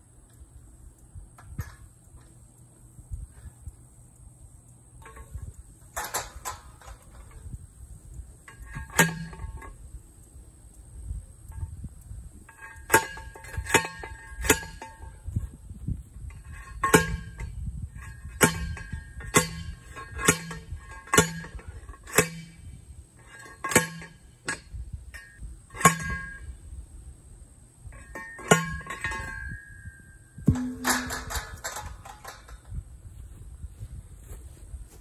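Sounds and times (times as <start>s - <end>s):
post driver clanging on steel post: 5.0s - 7.5s, 8.4s - 9.8s, 12.5s - 15.4s, 16.2s - 26.6s, 27.9s - 32.8s
light metallic clinks: 27.8s - 32.8s.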